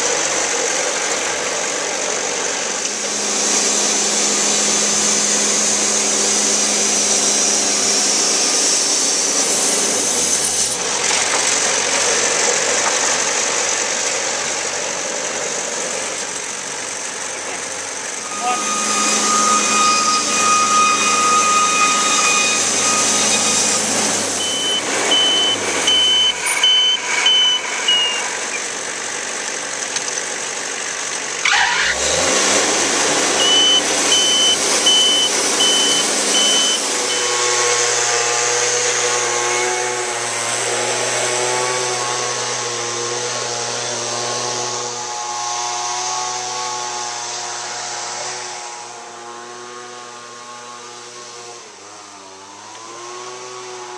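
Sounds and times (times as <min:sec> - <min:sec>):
sawmill engine running: 0:00.0 - 0:53.9
short high beeps: 0:18.3 - 0:28.7, 0:33.4 - 0:37.3.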